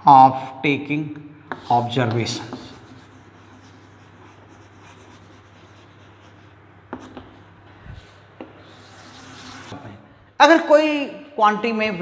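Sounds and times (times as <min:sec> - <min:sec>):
chalk scratching on blackboard: 0:01.5 - 0:09.8.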